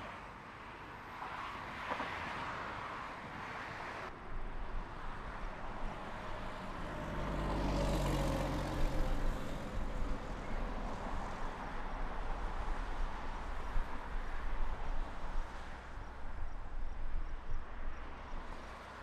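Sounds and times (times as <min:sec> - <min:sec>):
highway traffic rumble: 0:00.0 - 0:19.0
vehicle passing: 0:04.7 - 0:16.2.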